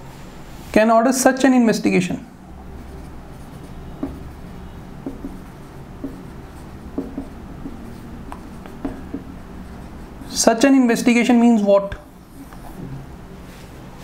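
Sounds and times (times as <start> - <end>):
marker squeaking on whiteboard: 2.6 - 12.8.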